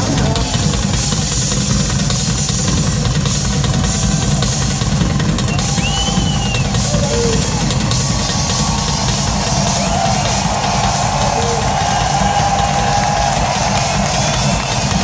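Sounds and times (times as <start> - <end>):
drum solo on rock kit: 0.0 - 15.0
high whistle: 5.5 - 7.7.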